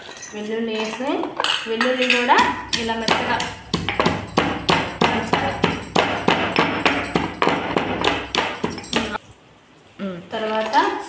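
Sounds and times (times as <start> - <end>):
pestle pounding in stone mortar: 2.4 - 9.2.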